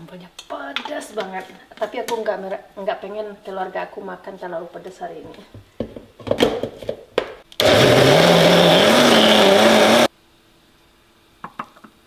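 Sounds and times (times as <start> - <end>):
electric blender motor: 7.6 - 10.1.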